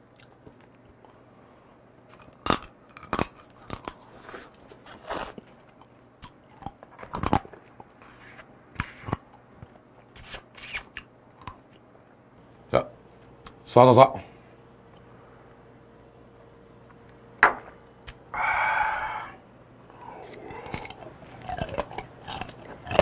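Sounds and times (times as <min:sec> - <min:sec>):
crunchy shell chewing: 0:00.0 - 0:13.6, 0:19.7 - 0:23.0.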